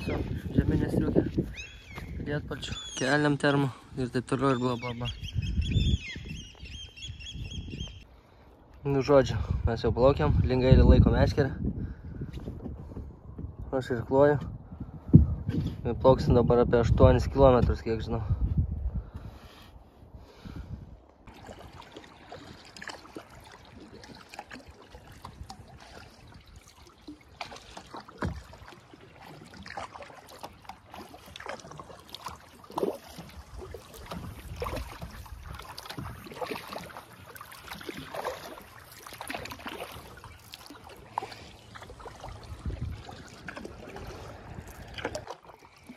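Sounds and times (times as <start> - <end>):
kayak paddle splashing: 21.2 - 45.9.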